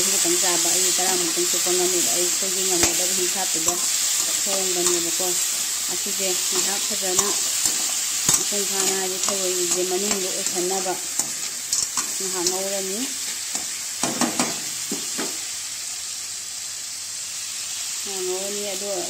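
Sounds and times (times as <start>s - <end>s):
food sizzling in a wok: 0.0s - 19.0s
metal spatula scraping a wok: 0.1s - 13.8s.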